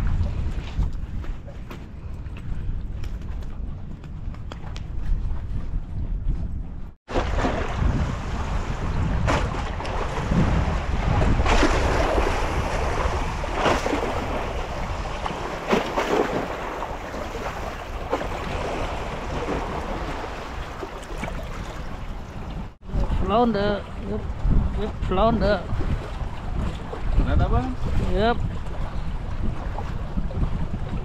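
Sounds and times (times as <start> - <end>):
wind buffeting microphone: 0.0 - 31.0
water splashing against pilings: 7.1 - 31.0.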